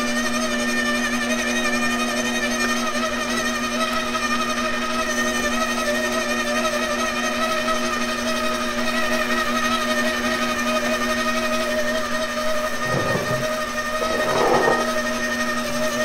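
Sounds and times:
stand mixer motor whining: 11.5 - 15.3
short dull noises: 12.8 - 15.0.

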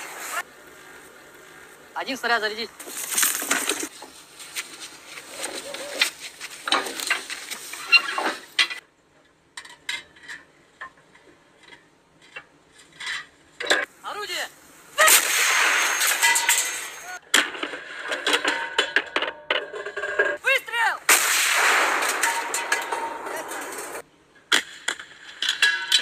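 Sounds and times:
metal clanks and rattles: 5.4 - 8.8, 15.6 - 20.4, 22.0 - 24.0
loud burst of noise: 15.0 - 17.2, 21.0 - 24.0.

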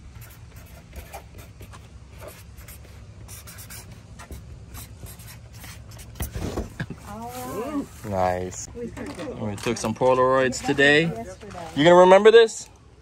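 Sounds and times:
marker scratching on paper: 0.0 - 7.6.

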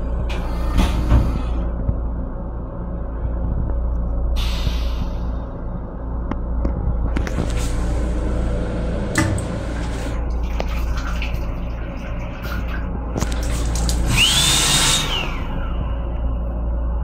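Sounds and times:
rail car rumble: 0.0 - 14.0
hand dryer blowing: 13.4 - 15.6.

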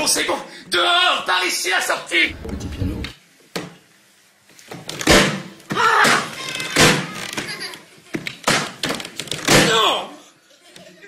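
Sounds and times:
loud thuds: 2.3 - 3.2.

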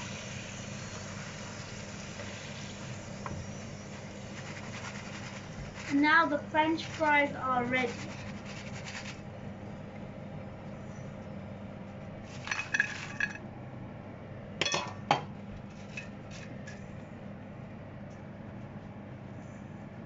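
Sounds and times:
steady low hum: 0.0 - 20.0
utensils clinking against pan: 14.6 - 15.2.

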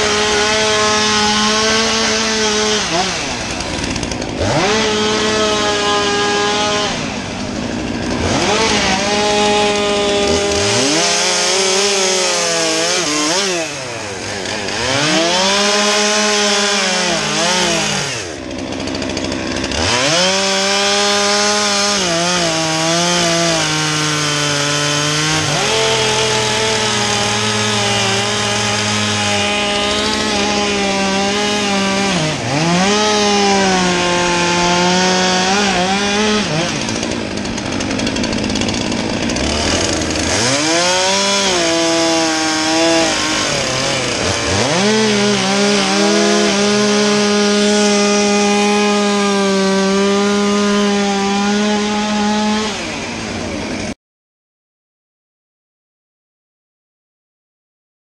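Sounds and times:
chainsaw revving: 0.0 - 54.0.

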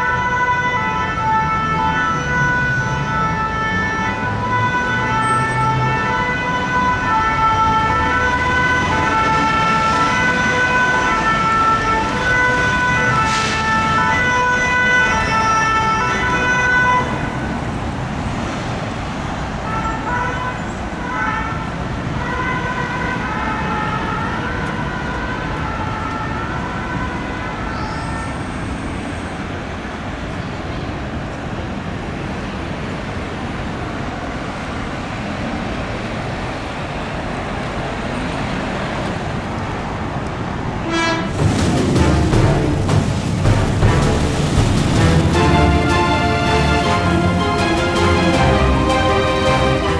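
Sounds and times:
two-tone siren: 0.0 - 17.5
city traffic noise: 0.0 - 49.9.

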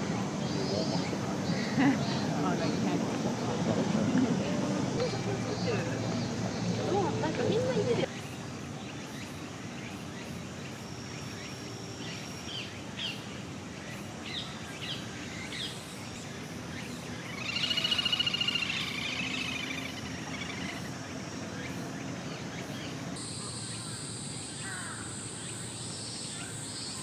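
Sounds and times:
outdoor background noise: 0.0 - 27.0
trilled bird call: 17.1 - 21.0.

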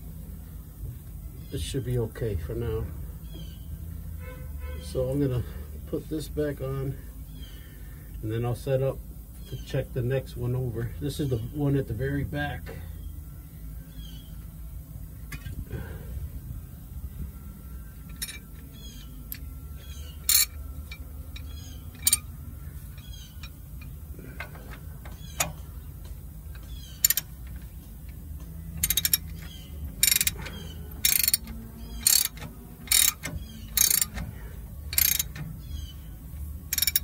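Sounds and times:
ratchet wrench clicking: 18.1 - 35.9, 36.7 - 37.0.

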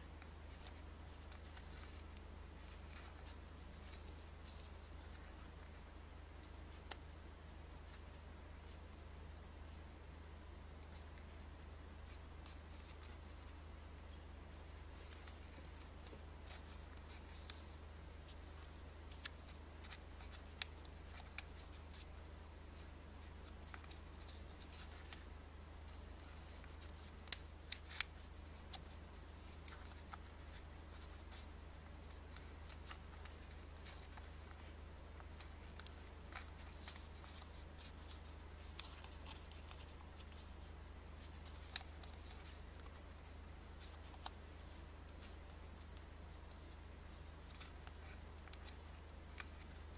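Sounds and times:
steady low hum: 0.0 - 49.9
paper banknote crinkling: 14.6 - 25.3, 25.9 - 49.9.

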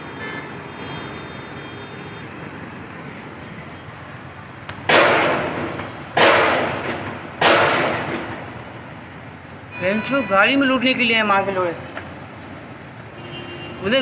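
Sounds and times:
street background: 0.0 - 14.0
gunshots echoing: 4.9 - 8.6.

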